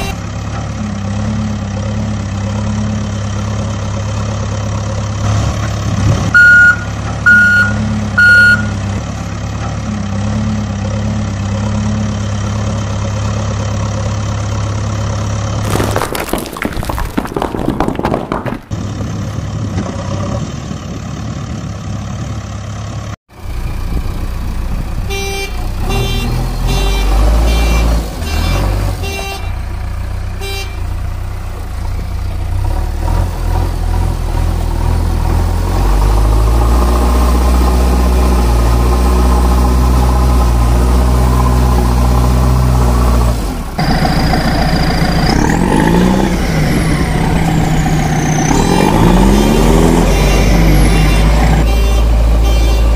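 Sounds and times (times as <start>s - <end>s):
heavy vehicle engine drone: 0.0s - 15.7s, 18.7s - 52.9s
short beeps: 6.4s - 8.8s.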